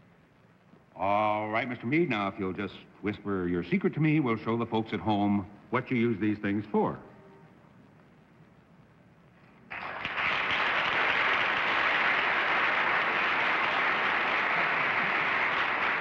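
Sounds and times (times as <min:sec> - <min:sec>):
studio audience applause: 0:09.7 - 0:16.0.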